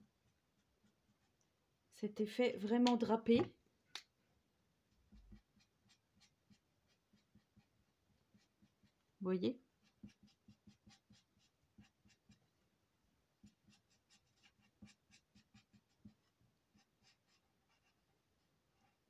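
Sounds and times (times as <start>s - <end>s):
marker scratching on paper: 5.1s - 9.0s, 9.8s - 12.4s, 13.4s - 18.1s.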